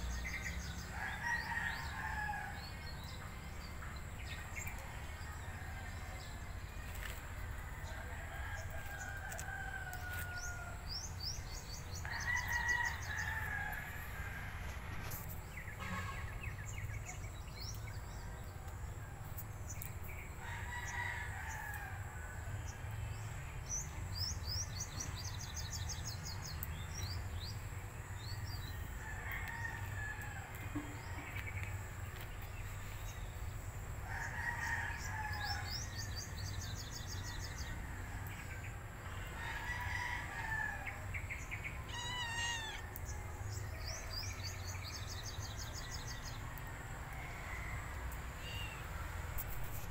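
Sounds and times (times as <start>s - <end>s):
small birds trilling: 38.3s - 46.4s, 48.4s - 49.9s
rooster crowing: 39.4s - 41.0s.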